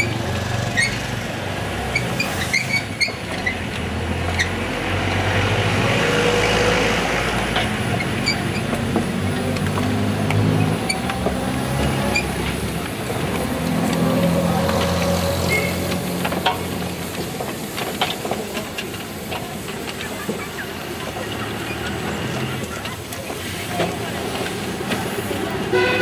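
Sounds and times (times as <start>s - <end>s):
steam locomotive moving slowly: 0.0s - 26.0s
clanks and clicks: 6.4s - 25.7s
hiss of escaping steam: 10.0s - 26.0s.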